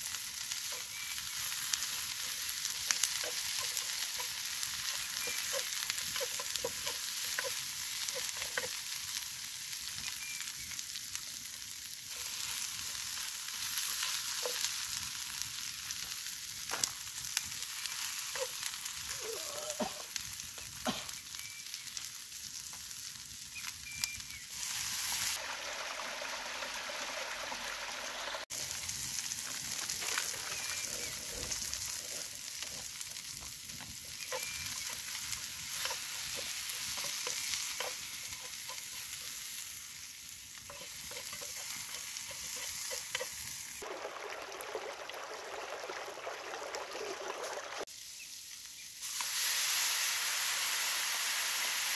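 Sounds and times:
vegetables sizzling in frying pan: 0:00.0 - 0:51.9
spatula scraping a pan: 0:34.0 - 0:39.6, 0:40.6 - 0:43.6.

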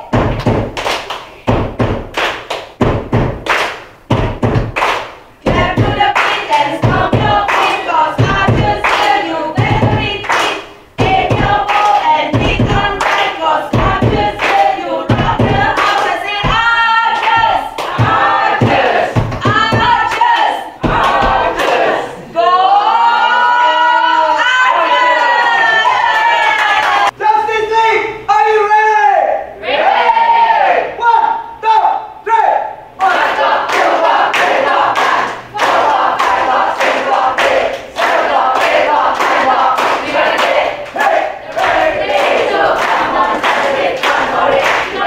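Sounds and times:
people clapping in time: 0:00.0 - 0:21.9, 0:33.0 - 0:45.0
voices singing together: 0:05.4 - 0:27.2, 0:32.9 - 0:45.0.

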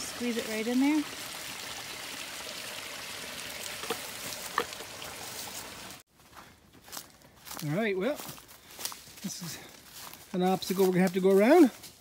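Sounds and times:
water trickling into plastic bottle: 0:00.7 - 0:06.0.

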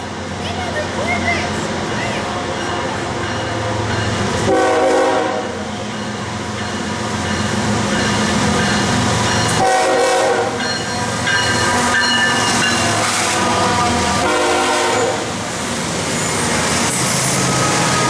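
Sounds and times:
diesel locomotive rumble: 0:00.0 - 0:18.0
train air horn blasts: 0:04.4 - 0:05.7, 0:09.6 - 0:10.6, 0:12.9 - 0:15.3.

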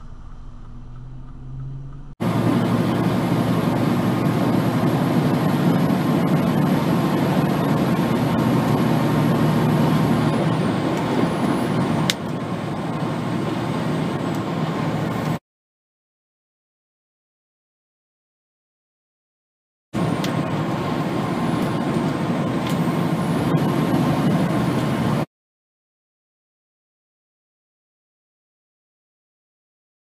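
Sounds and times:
truck engine and road noise: 0:00.0 - 0:15.4, 0:20.0 - 0:25.3.

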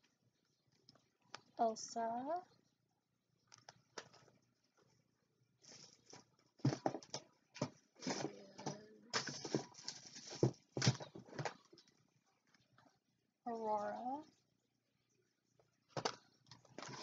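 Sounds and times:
packaging rustling and crackling: 0:05.6 - 0:11.9, 0:16.0 - 0:17.0.

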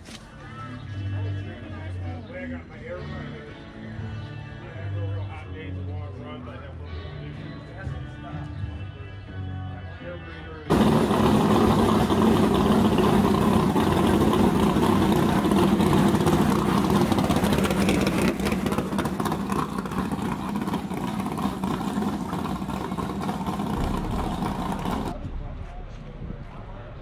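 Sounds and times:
car engine running: 0:10.7 - 0:25.3.

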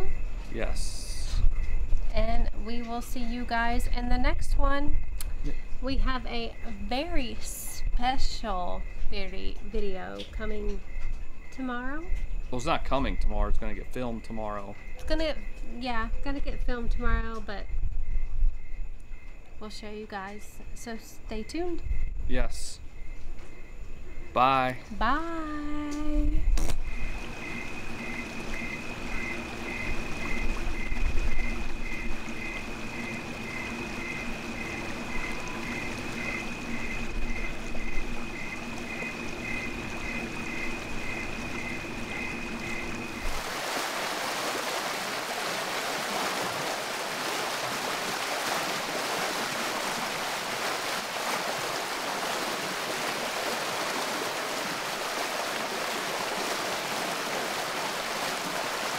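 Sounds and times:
low hum: 0:23.0 - 0:43.6
steady high-pitched tone: 0:24.4 - 0:43.3
water churning in rocky pool: 0:27.0 - 0:58.9.

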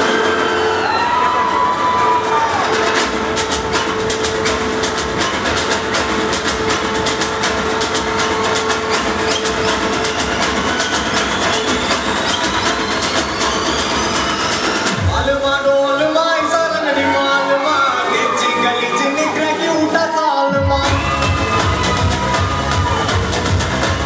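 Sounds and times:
fast clicking rhythm: 0:01.5 - 0:15.7, 0:20.8 - 0:24.0.

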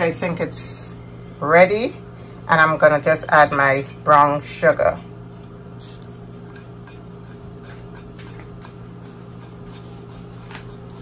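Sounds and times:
steady low hum: 0:00.0 - 0:11.0
hot oil ticking and crackling: 0:05.8 - 0:10.0.

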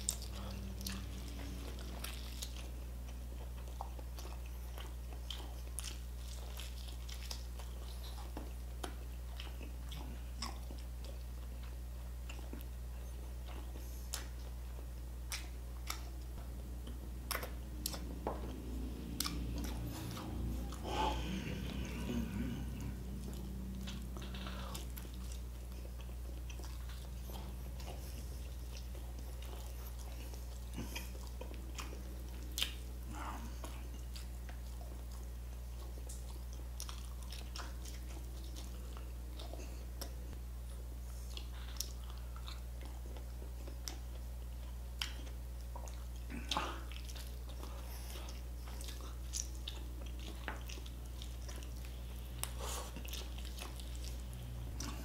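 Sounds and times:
man chewing and biting: 0:00.0 - 0:55.0
steady low hum: 0:00.0 - 0:55.0.

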